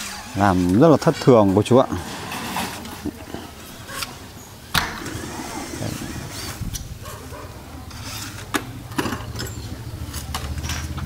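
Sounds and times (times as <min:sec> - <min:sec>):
engine running with low hum: 0:07.0 - 0:11.0.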